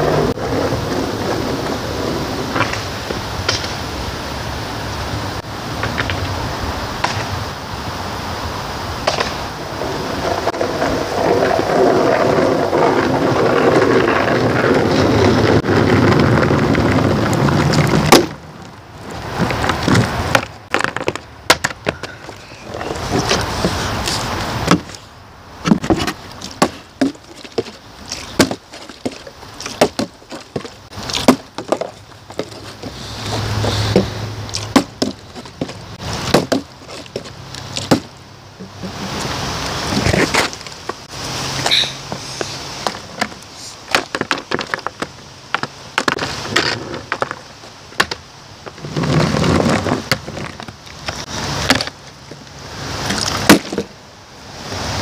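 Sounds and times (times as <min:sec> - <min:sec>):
wind buffeting microphone: 0:00.0 - 0:04.2, 0:09.4 - 0:20.7
skateboard knocks and clacks: 0:09.0 - 0:18.4, 0:19.2 - 0:25.0, 0:25.6 - 0:38.1, 0:42.8 - 0:52.0.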